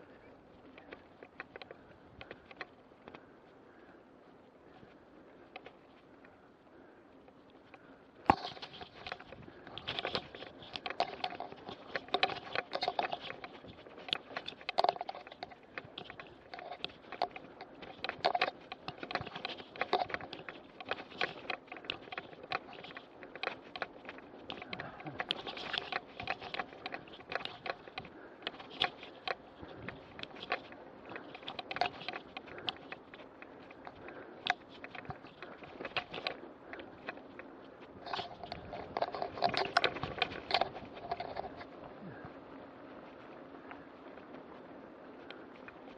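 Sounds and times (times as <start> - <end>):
mountain bike rattling and clicking: 0.0 - 45.9.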